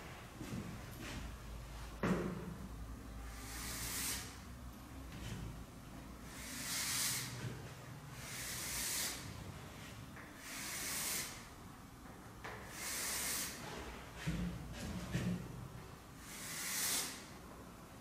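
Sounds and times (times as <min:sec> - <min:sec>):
chalk scraping on a chalkboard: 0:03.4 - 0:04.4, 0:06.3 - 0:07.4.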